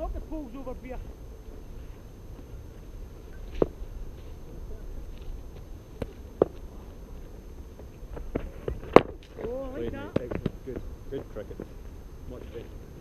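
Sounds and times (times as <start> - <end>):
cricket ball knocks: 10.1 - 10.6.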